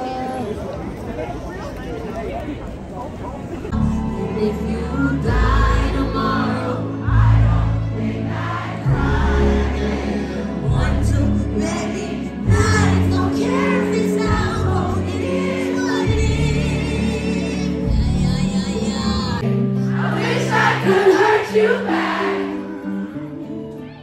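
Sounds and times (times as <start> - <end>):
crowd singing along: 3.7 - 23.7
female singer: 3.8 - 7.6, 8.9 - 19.7.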